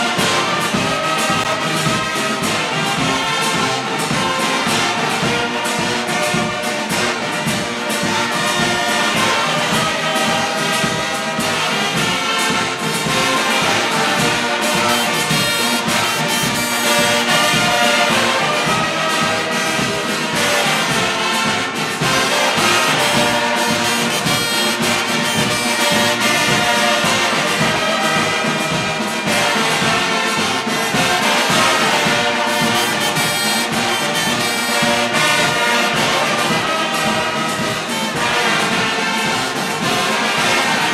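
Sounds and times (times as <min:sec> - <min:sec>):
brass band playing loudly: 0:00.0 - 0:40.9.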